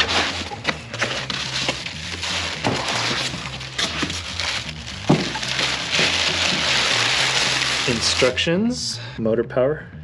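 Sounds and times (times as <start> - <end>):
foam and cardboard rustling: 0.0 - 8.4
plastic wrapping handled: 0.0 - 8.5.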